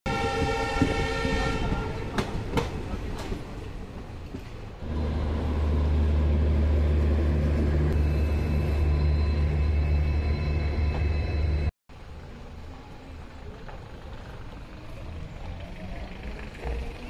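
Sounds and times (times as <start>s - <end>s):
train rumbling with throb: 0.1s - 11.7s.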